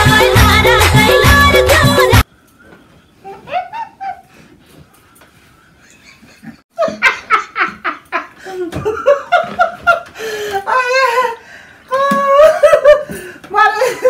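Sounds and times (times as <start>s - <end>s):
woman and man laughing: 3.3s - 4.3s, 5.8s - 10.1s, 12.0s - 14.0s.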